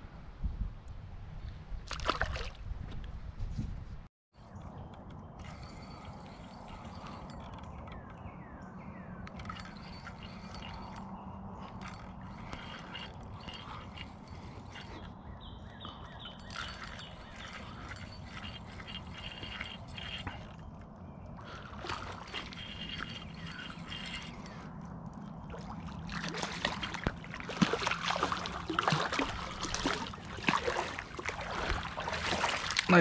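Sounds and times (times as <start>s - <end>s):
water splashing: 1.9s - 2.6s, 21.4s - 24.7s, 25.4s - 33.0s.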